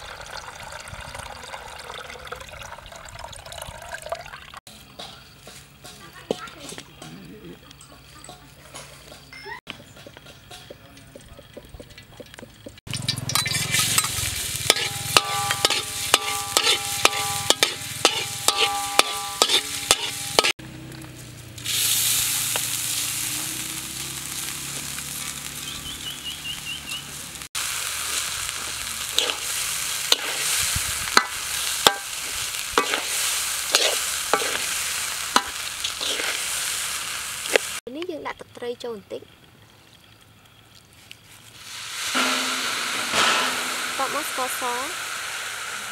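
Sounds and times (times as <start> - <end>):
metal spatula scraping wok: 12.9 - 20.6, 28.1 - 36.8, 42.1 - 45.9
wok ringing: 12.9 - 20.6, 27.6 - 36.6, 42.1 - 45.9
rice sizzling in hot oil: 13.0 - 37.9, 41.2 - 45.9.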